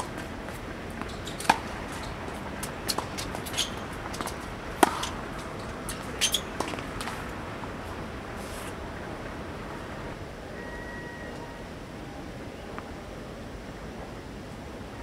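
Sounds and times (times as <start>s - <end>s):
ball bouncing: 0.0s - 7.4s
racket striking tennis ball: 0.0s - 7.4s
shoes squeaking on court: 0.0s - 8.8s.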